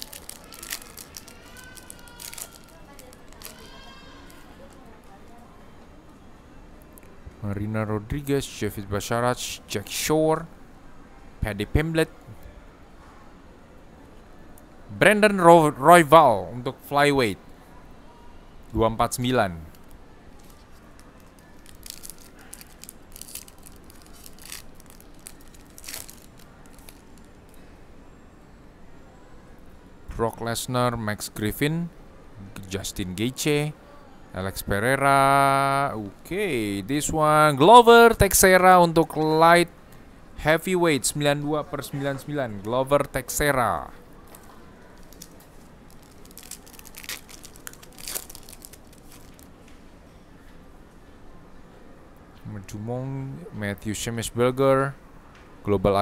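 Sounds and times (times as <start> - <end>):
foil wrapper crinkling and tearing: 0.0 - 4.8, 19.7 - 27.3, 44.3 - 49.5.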